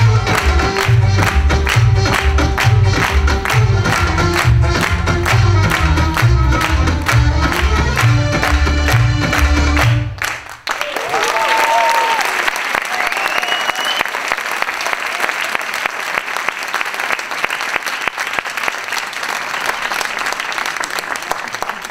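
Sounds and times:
music: 0.0 - 10.2
audience applauding: 0.0 - 21.9
cheers: 10.6 - 16.4
high whistle: 13.0 - 14.2.

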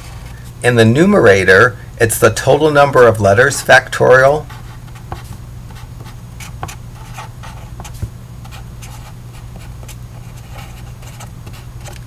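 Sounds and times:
low electrical hum: 0.0 - 12.0
pen scratching on paper: 4.4 - 12.0.

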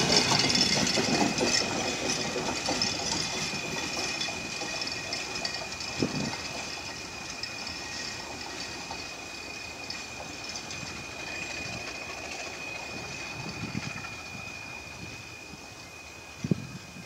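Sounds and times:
freight train wheels rumbling on rails: 0.0 - 17.0.

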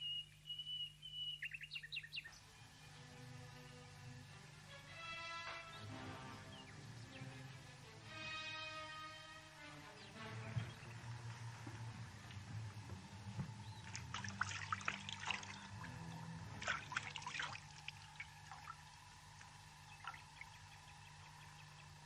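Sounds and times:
low steady hum: 0.0 - 22.0
water splashing in a washbasin: 13.2 - 20.8.

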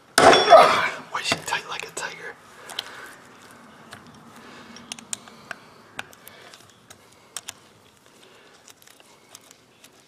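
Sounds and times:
metal clicks and taps: 4.8 - 7.6.

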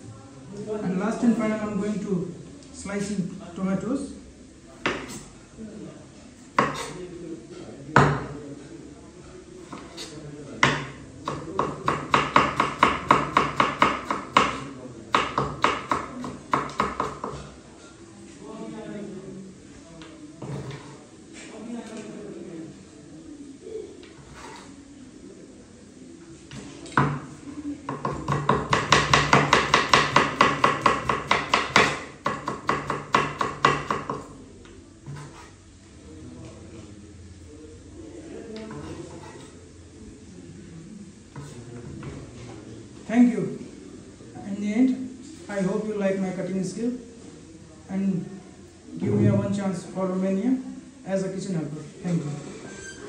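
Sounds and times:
knife chopping on wooden board: 4.8 - 5.2, 6.6 - 6.9, 9.7 - 17.4, 27.9 - 34.3, 35.1 - 35.5
knife slicing on wooden board: 35.1 - 35.6.

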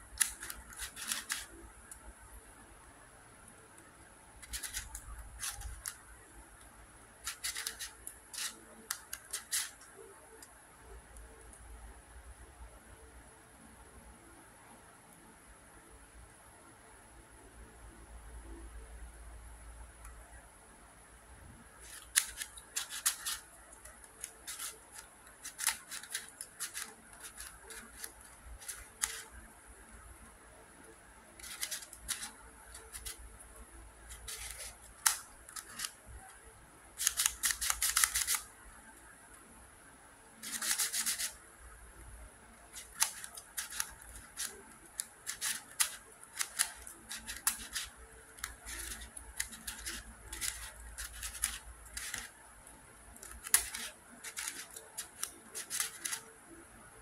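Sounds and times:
plastic puzzle pieces clicking: 0.1 - 2.1, 4.4 - 6.2, 7.2 - 10.5, 21.8 - 29.4, 31.4 - 33.2, 34.1 - 36.2, 37.0 - 38.5, 40.4 - 41.4, 42.7 - 52.4, 53.1 - 56.3.

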